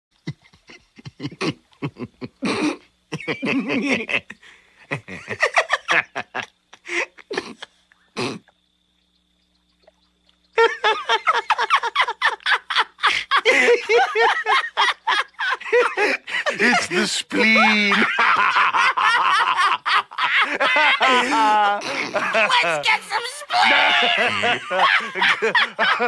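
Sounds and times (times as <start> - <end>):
loud open laughter: 0.3 - 7.8, 10.6 - 26.0
cartoon characters snickering: 20.4 - 25.6.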